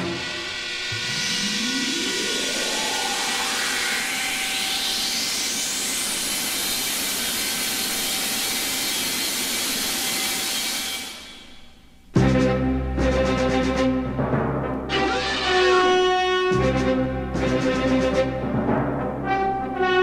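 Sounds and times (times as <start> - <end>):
rising whine: 0.0 - 9.1
loud rushing hiss: 0.0 - 11.7.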